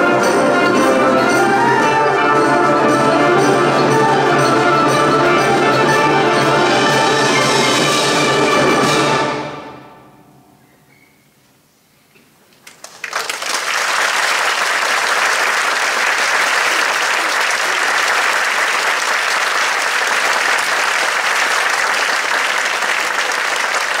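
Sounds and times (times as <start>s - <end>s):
audience applauding: 12.6s - 24.0s.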